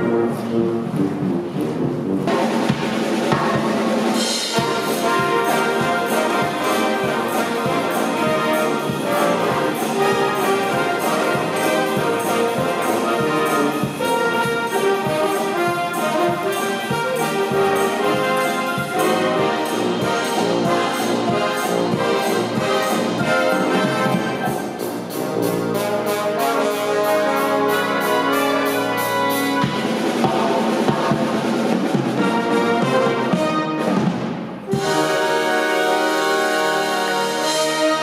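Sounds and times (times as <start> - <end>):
brass band playing: 0.0 - 38.0
drum kit beat: 1.8 - 38.0.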